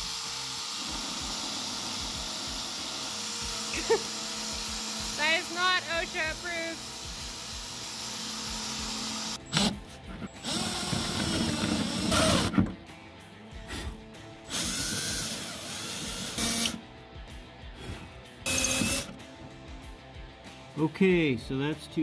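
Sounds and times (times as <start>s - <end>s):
electric drill cutting sheet steel: 0.0s - 12.6s, 14.5s - 16.8s, 18.5s - 19.2s.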